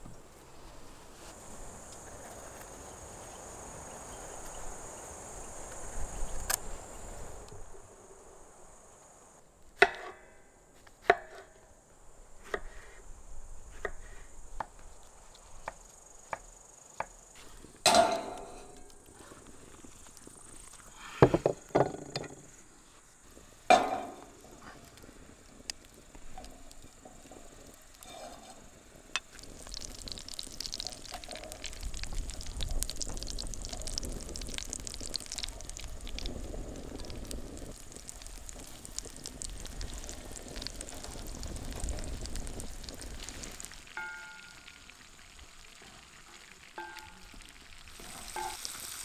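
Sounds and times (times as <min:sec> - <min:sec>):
mushrooms sizzling in butter: 0:22.4 - 0:49.0.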